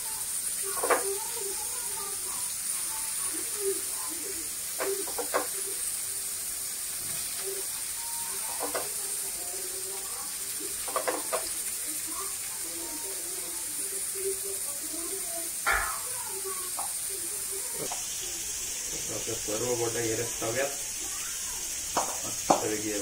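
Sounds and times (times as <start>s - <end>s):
fish sizzling in oil: 0.0s - 23.0s.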